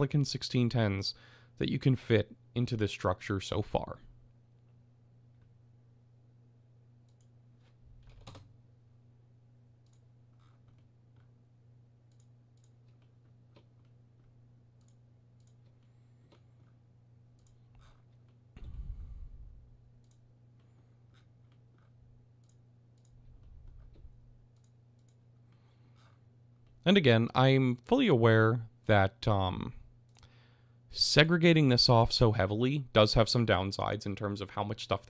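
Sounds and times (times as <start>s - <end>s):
low electrical hum: 0.0s - 35.0s
low thump: 18.6s - 19.6s.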